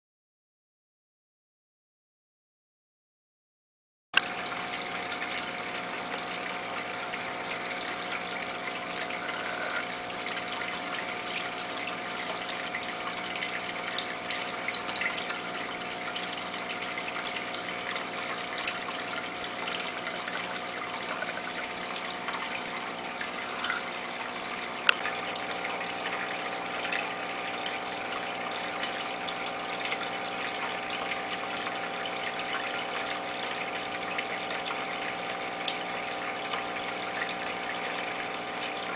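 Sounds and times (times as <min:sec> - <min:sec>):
pump hum: 0:04.2 - 0:38.9
water rushing through filter: 0:04.2 - 0:38.9.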